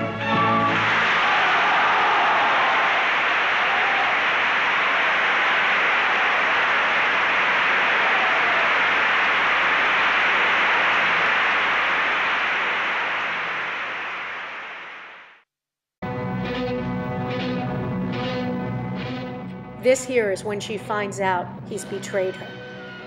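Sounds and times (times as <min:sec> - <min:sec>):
audience applauding: 0:00.3 - 0:14.8.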